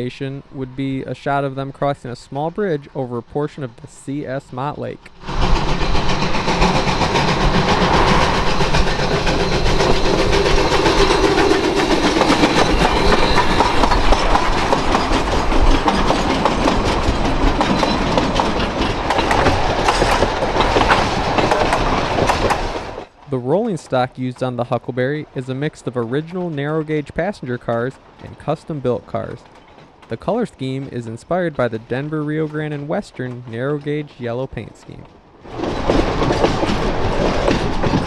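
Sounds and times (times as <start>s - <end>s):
steam locomotive exhaust: 3.6s - 23.0s
train wheels clattering on rails: 5.0s - 38.0s.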